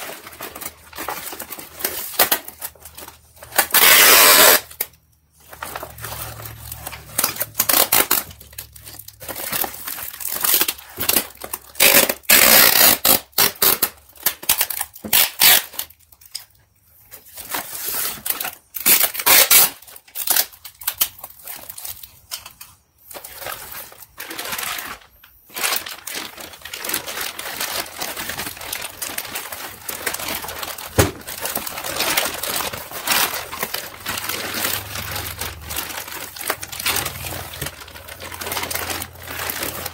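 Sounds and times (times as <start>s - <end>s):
plastic bag rustling: 0.0s - 4.7s, 5.3s - 13.2s, 17.0s - 39.9s
paper crinkling and rustling: 0.0s - 39.9s
paper tearing: 3.4s - 4.9s, 9.4s - 13.9s, 14.6s - 15.9s, 17.5s - 20.5s, 24.2s - 39.9s.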